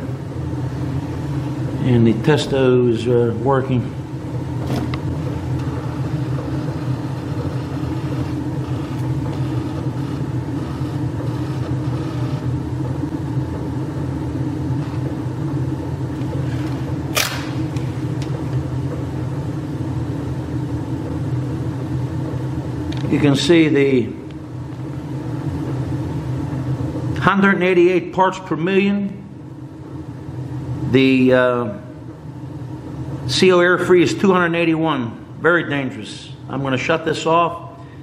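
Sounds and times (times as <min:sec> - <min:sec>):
boiler hum and rumble: 0:00.0 - 0:38.0.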